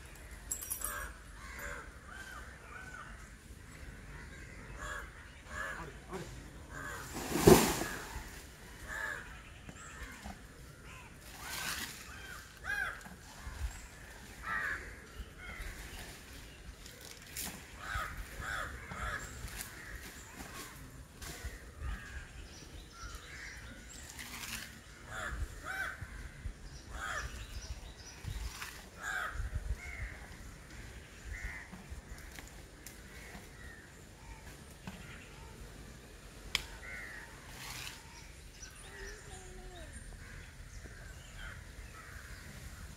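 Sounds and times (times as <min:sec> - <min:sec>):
crows cawing: 0:00.9 - 0:02.5, 0:08.8 - 0:09.3, 0:12.6 - 0:13.0, 0:14.4 - 0:15.0, 0:17.8 - 0:19.2, 0:25.1 - 0:26.2.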